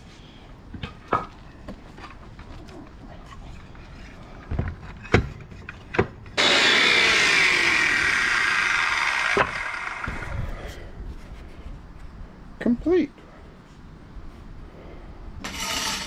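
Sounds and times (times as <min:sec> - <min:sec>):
circular saw cutting wood: 0:06.4 - 0:10.4, 0:15.4 - 0:16.0.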